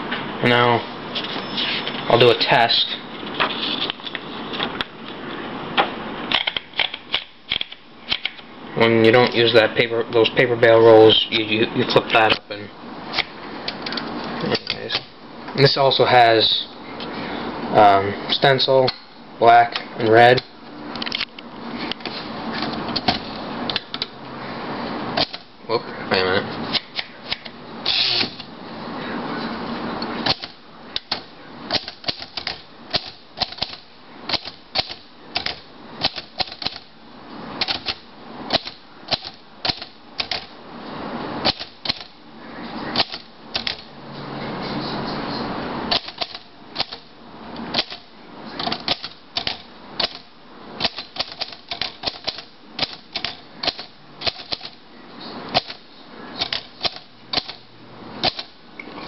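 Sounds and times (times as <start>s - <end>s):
typewriter keystroke clacks: 6.3s - 8.4s, 30.2s - 36.9s, 37.6s - 40.5s, 41.4s - 42.1s, 43.0s - 43.9s, 45.9s - 47.0s, 47.7s - 54.8s, 55.5s - 55.8s, 56.4s - 57.6s, 58.2s - 58.6s.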